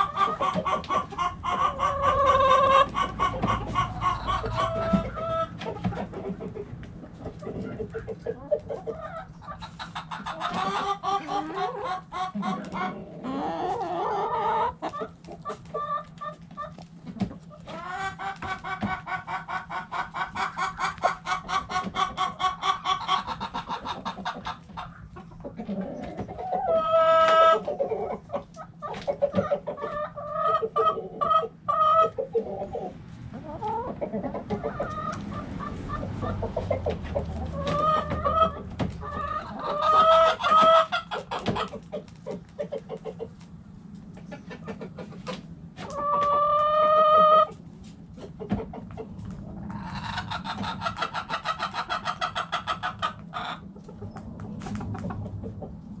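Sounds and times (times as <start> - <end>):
hen drawn-out calls: 0.0 - 6.4, 29.1 - 43.2, 49.7 - 53.7
hens clucking: 0.0 - 56.0.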